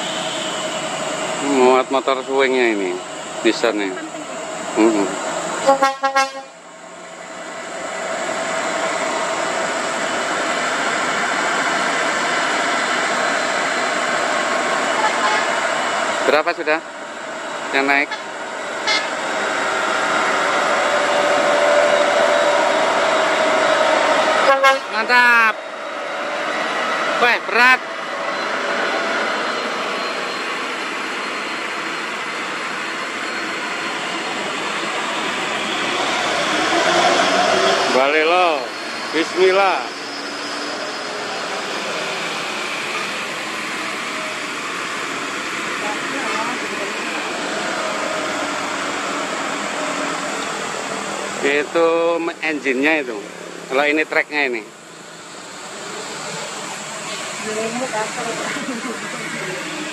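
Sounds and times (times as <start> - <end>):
tyres rushing on road: 6.4 - 59.9.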